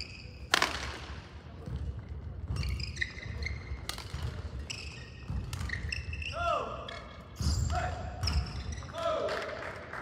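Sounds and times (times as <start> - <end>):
court shoes squeaking on floor: 0.0 - 0.8, 1.6 - 9.1
racket hitting shuttlecock: 0.4 - 1.2, 3.8 - 4.5.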